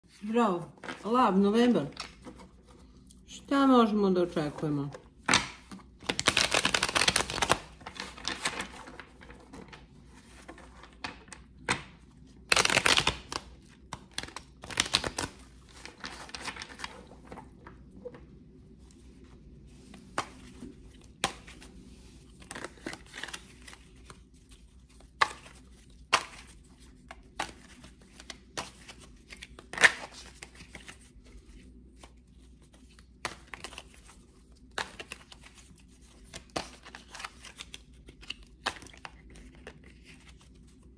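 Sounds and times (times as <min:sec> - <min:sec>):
cards shuffling: 0:04.4 - 0:17.8, 0:19.8 - 0:40.9
cards clicking and tapping: 0:04.9 - 0:08.6.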